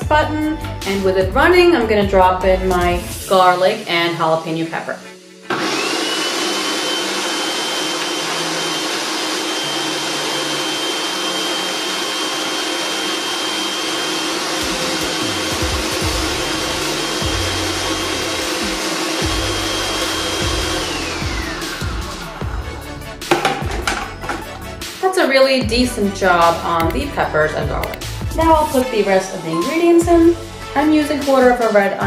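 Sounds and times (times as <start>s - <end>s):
food processor motor whirring: 5.5s - 24.6s.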